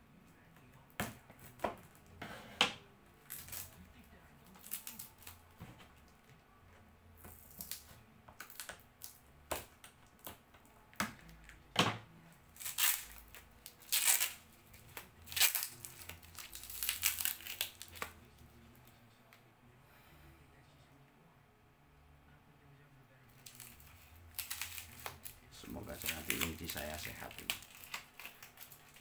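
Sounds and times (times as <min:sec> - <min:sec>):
wrapping crinkling and crackling: 0:03.2 - 0:06.2, 0:07.2 - 0:10.4, 0:12.4 - 0:18.9, 0:23.3 - 0:29.0.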